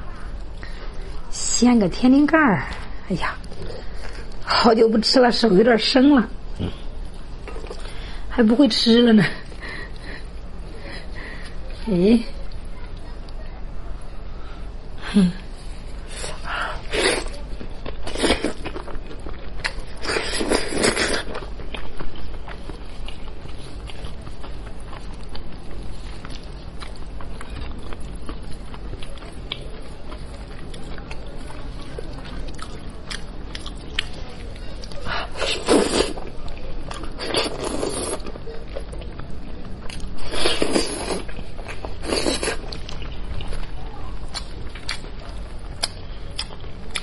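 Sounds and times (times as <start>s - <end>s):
steady low hum: 0.0s - 47.0s
chewing: 15.5s - 47.0s.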